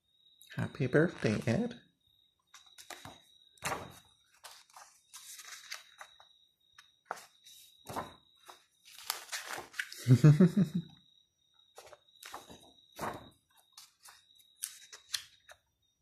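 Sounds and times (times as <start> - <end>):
person's voice: 0.6 - 1.8
book pages turning: 2.5 - 6.2, 6.8 - 10.0, 11.8 - 15.6.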